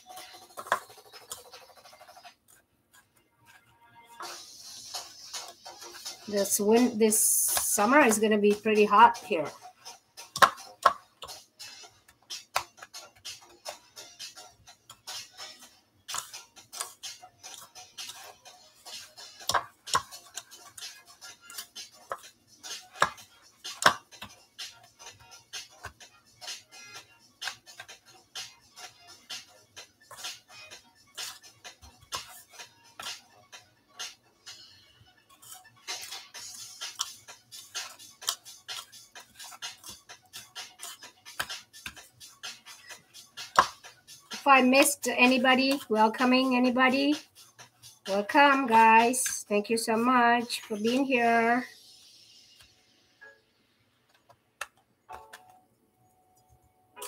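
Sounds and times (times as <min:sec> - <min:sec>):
fingers working in breadcrumbs: 0:00.0 - 0:03.7, 0:09.8 - 0:33.3, 0:35.3 - 0:52.7.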